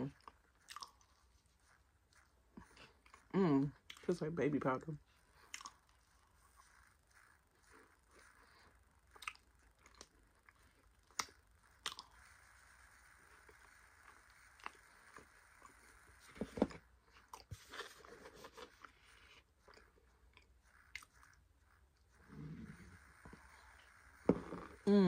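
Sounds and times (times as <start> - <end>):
close-up chewing and crunching: 0.1 - 4.1, 5.2 - 15.9, 16.6 - 21.5.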